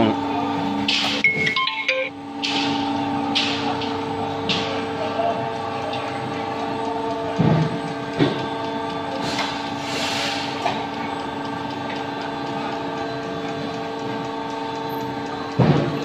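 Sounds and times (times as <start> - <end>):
hydraulic press humming: 0.0 - 16.0
machine knocks: 7.3 - 8.4, 15.5 - 16.0
hiss: 9.2 - 10.5.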